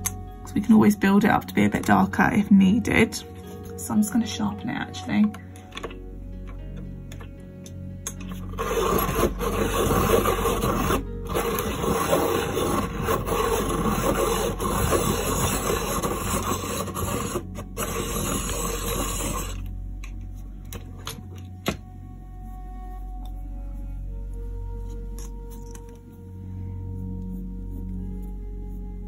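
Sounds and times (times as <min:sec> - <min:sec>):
pencil sharpener grinding: 0:08.1 - 0:19.7.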